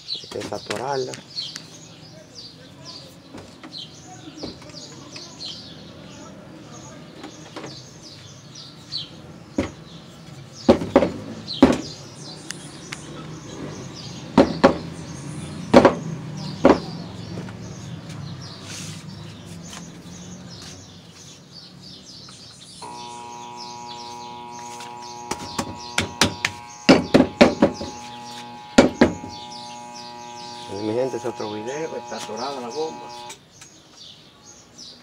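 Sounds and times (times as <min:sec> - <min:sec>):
birds chirping: 0:00.0 - 0:35.0
sharp knocks on metal pump: 0:25.3 - 0:27.9.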